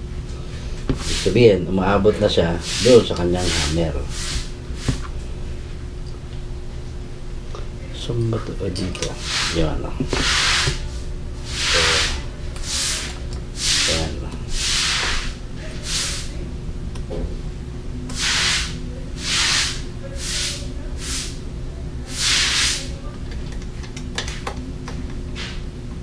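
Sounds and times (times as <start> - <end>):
aerosol spray can bursts: 18.1 - 21.3, 22.1 - 22.8.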